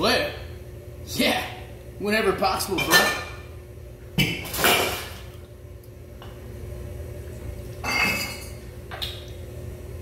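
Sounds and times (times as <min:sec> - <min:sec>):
steady low hum: 0:00.0 - 0:10.0
glassware clinking: 0:02.8 - 0:03.4, 0:07.8 - 0:08.7.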